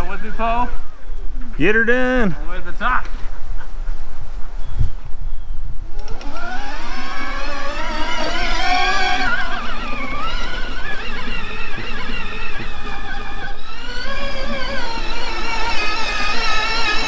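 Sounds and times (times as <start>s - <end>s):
low wind rumble: 0.0s - 17.0s
electric motor whining: 5.8s - 17.0s.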